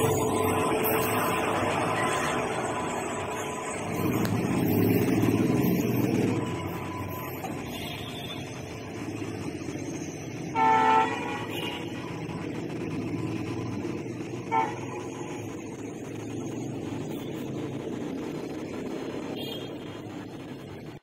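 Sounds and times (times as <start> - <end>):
diesel locomotive engine rumble: 0.0 - 21.0
locomotive horn: 10.5 - 12.0, 14.4 - 15.5.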